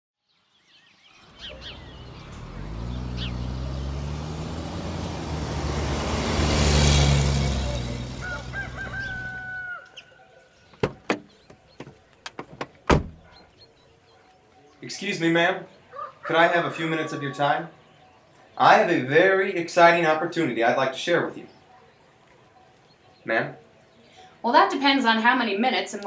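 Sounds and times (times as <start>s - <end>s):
faint bird chirps: 0.2s - 4.0s
rooster crowing: 8.0s - 10.4s, 15.9s - 17.8s.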